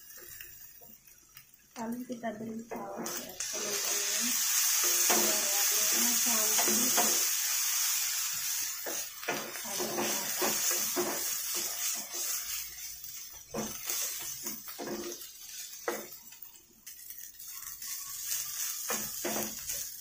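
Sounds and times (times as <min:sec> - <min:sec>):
food sizzling: 0:00.0 - 0:20.0
spatula scraping frying pan: 0:03.0 - 0:16.2, 0:16.9 - 0:20.0.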